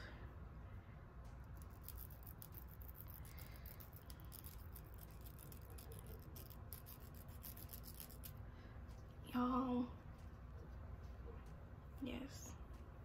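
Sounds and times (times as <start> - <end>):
razor scratching lace: 1.3 - 8.4.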